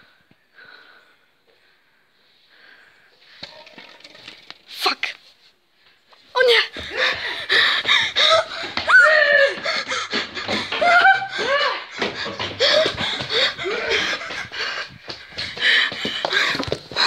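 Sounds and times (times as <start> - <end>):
children panting: 6.6 - 17.0
children laughing: 6.9 - 15.3.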